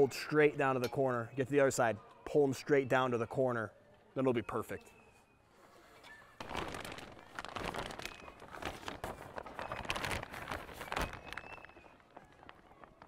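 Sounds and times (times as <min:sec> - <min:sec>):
plastic film rustling and crackling: 0:06.4 - 0:13.0.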